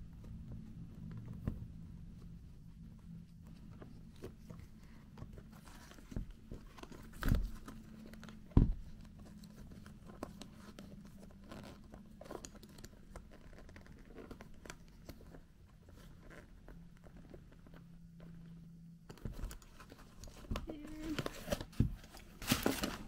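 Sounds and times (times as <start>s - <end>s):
shoe handling rustling: 19.1s - 23.0s.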